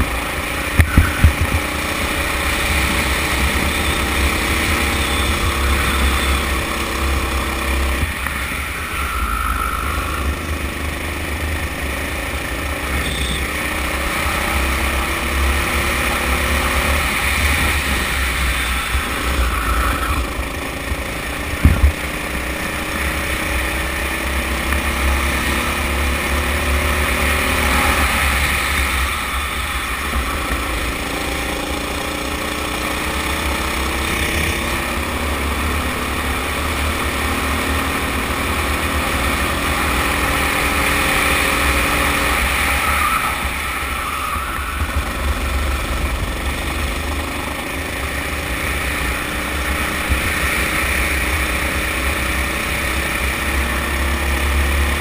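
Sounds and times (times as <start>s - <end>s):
kart engine at full throttle: 0.0s - 55.0s.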